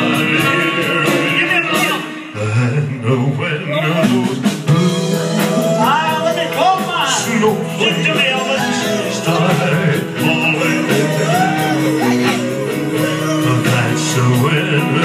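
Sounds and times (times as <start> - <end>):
live band music: 0.0 - 15.0
two men singing a duet: 0.0 - 15.0.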